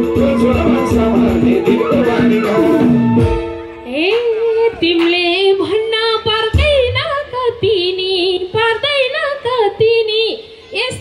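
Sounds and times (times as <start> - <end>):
band music: 0.0 - 4.5
woman singing into a microphone: 3.7 - 11.0.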